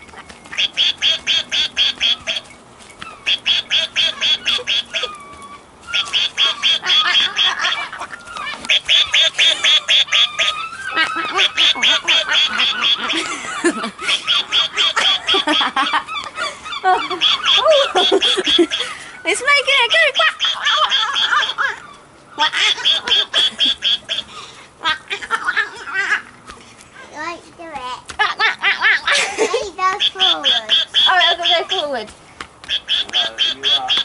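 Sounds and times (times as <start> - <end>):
rapid quacking: 0.1 - 2.5, 3.1 - 5.2, 5.9 - 16.0, 16.7 - 21.8, 22.4 - 24.4, 29.9 - 34.0.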